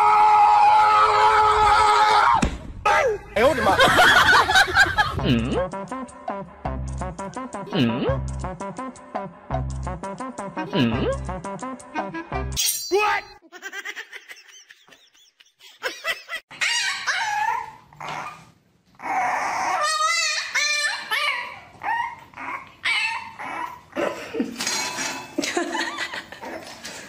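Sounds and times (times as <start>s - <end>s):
dog barking and whining: 16.5s - 23.9s.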